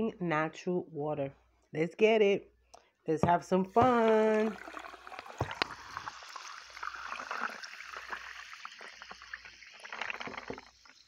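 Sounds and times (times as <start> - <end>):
sparkling water fizzing: 4.0 - 11.0.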